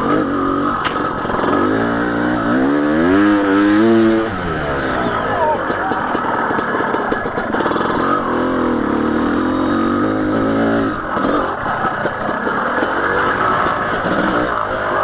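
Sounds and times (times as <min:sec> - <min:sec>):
dirt bike engine revving: 0:00.0 - 0:15.0.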